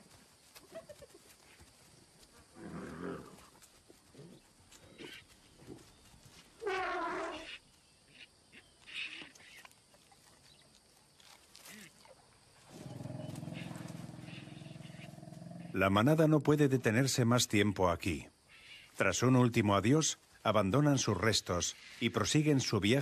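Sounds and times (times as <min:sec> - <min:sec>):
growling animal call: 0:06.6 - 0:07.6, 0:12.7 - 0:15.8
elephant call: 0:12.7 - 0:15.8.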